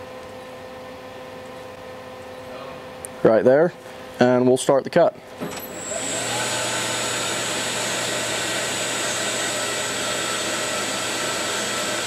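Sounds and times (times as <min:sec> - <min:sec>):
band saw whining and humming: 0:05.4 - 0:12.0.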